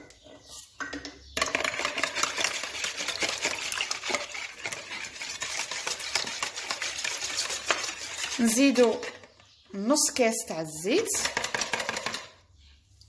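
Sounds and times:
whisk beating eggs in bowl: 1.4s - 9.3s, 11.1s - 12.3s.

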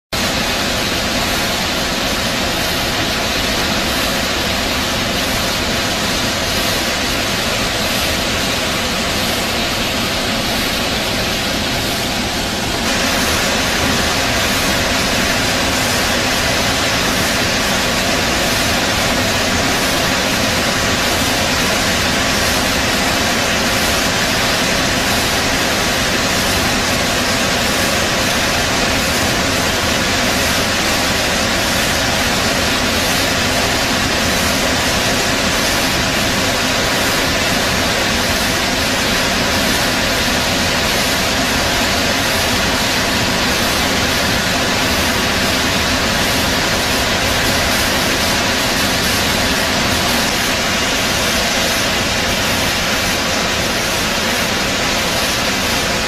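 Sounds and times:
waterfall rushing: 0.2s - 56.0s.

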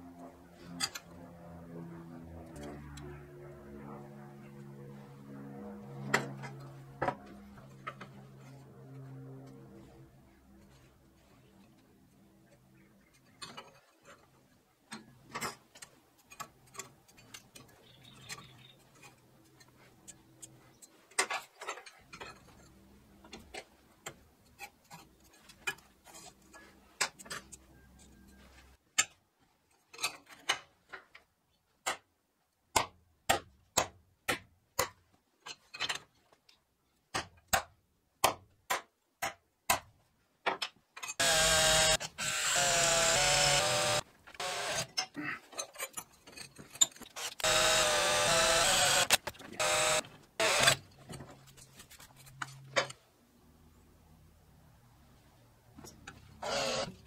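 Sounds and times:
small motor running: 41.2s - 44.9s, 47.2s - 50.8s, 56.4s - 57.0s.

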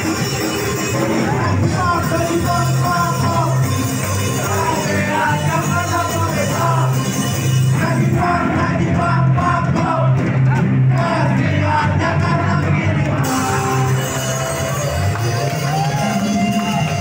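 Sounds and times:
crowd yelling: 0.0s - 17.0s
live rock band: 0.0s - 17.0s
person singing: 0.7s - 10.1s, 11.0s - 17.0s.

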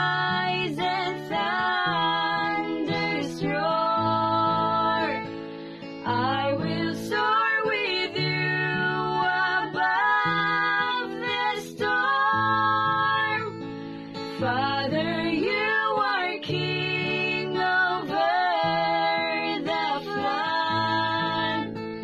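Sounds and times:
acoustic guitar: 0.0s - 22.0s.

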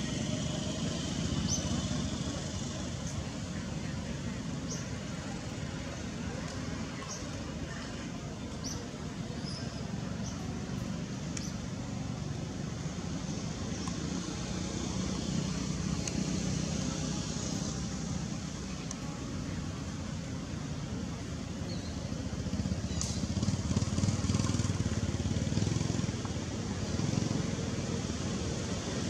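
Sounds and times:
distant traffic rumble: 0.0s - 29.0s.

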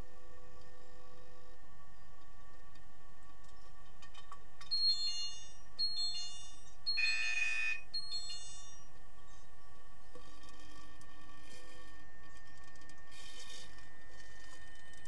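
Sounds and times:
electronic chime-like beeps: 4.8s - 8.8s.

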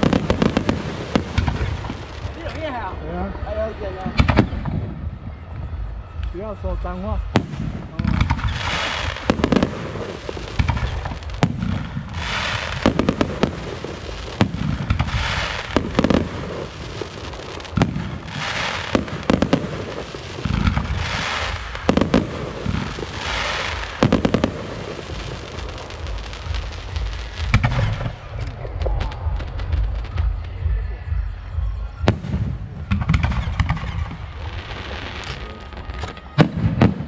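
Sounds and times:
crackling and hissing: 0.0s - 2.9s, 7.4s - 31.0s.

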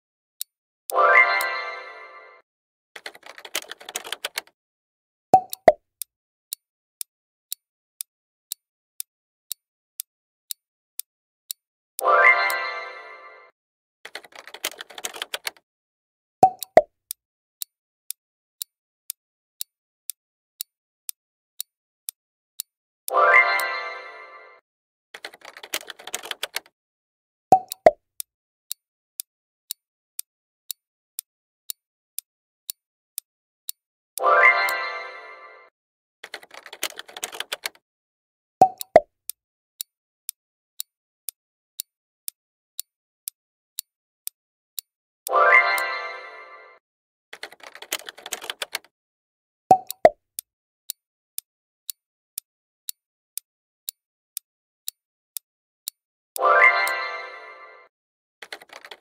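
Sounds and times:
clock ticking: 0.4s - 1.6s, 3.0s - 4.6s, 5.4s - 6.1s, 8.5s - 12.6s, 14.1s - 15.6s, 16.4s - 20.7s, 22.6s - 23.8s, 25.2s - 26.7s, 27.5s - 34.8s, 36.2s - 37.8s, 38.6s - 39.9s, 41.8s - 45.9s, 47.4s - 48.9s, 49.7s - 53.5s, 55.8s - 57.0s, 58.4s - 59.0s.

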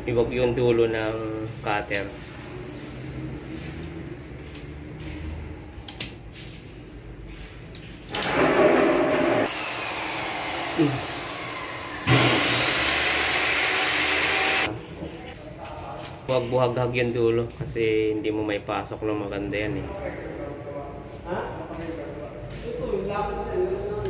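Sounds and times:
small motor whining: 9.4s - 14.7s.

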